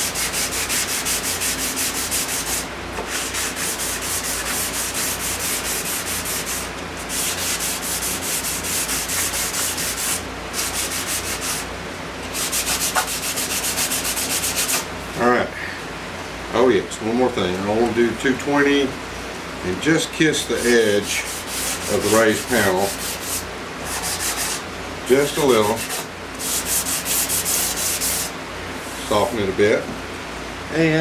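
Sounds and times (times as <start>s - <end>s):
sandpaper rasping on wood: 0.0s - 11.7s, 12.3s - 14.8s, 20.6s - 24.6s, 25.3s - 28.3s
box fan humming: 0.0s - 31.0s.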